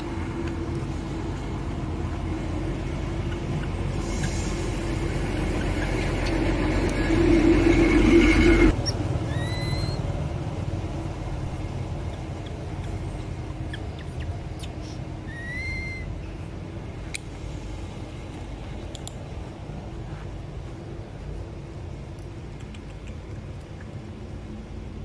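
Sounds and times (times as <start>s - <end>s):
loud steady hum: 0.0s - 25.0s
low background rumble: 0.0s - 25.0s
infant monkey squeaky calls: 3.2s - 4.4s, 5.4s - 6.4s, 8.7s - 10.0s, 12.0s - 16.1s.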